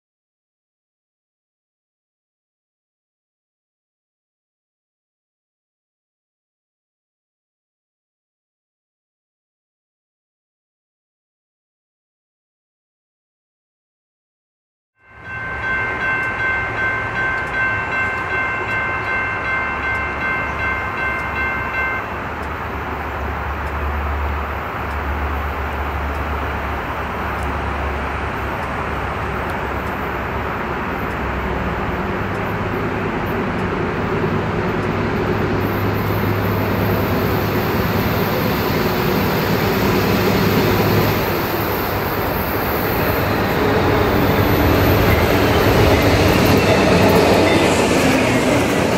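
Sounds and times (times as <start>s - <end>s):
crossing bell ringing: 15.0s - 24.1s, 27.3s - 48.9s
diesel locomotive rumble: 15.4s - 48.9s.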